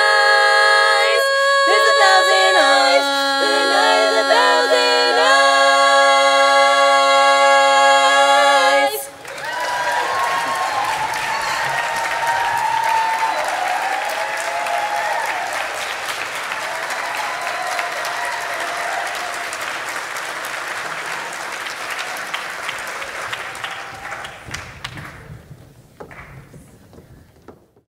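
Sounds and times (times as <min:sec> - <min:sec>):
audience applauding: 0:08.8 - 0:26.4.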